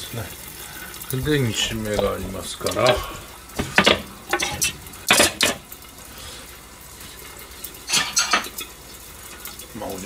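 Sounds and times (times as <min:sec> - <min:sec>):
metal pan lid clattering: 0:01.6 - 0:05.6, 0:07.9 - 0:08.6.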